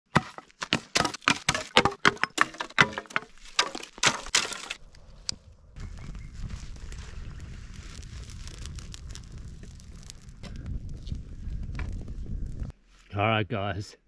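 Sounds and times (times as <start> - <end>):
sticks clattering and snapping: 0.1 - 5.4.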